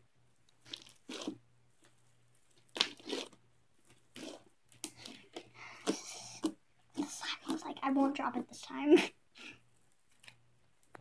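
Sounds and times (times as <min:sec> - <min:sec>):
slime crackling and tearing: 0:00.5 - 0:07.6.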